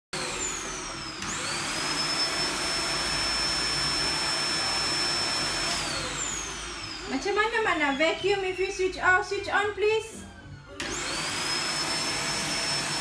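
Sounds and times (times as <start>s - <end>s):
vacuum cleaner motor: 0.2s - 8.2s, 10.8s - 13.0s.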